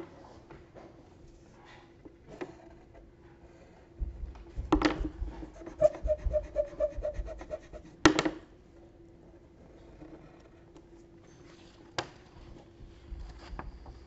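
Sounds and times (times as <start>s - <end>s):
deep thumps: 4.0s - 8.0s
clothing rubbing microphone: 4.1s - 8.0s.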